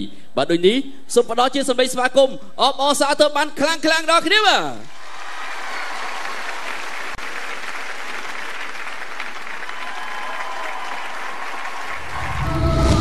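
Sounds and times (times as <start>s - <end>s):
audience applauding: 4.9s - 13.0s
music: 12.2s - 13.0s.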